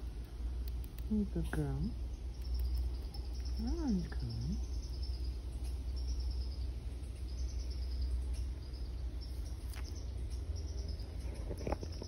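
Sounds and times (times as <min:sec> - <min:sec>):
chipmunk chewing clicks: 0:00.0 - 0:05.8
low background rumble: 0:00.0 - 0:12.0.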